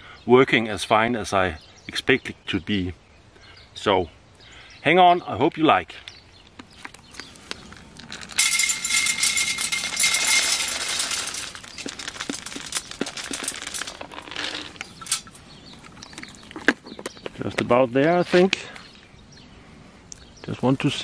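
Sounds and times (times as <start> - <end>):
pellets clicking: 7.3 - 15.4
pellets rattling into metal stove: 8.0 - 15.4.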